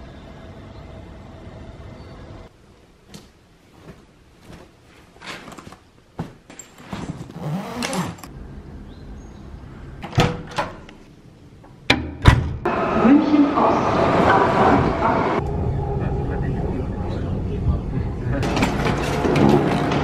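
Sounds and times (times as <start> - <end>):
rustling: 2.7 - 7.3.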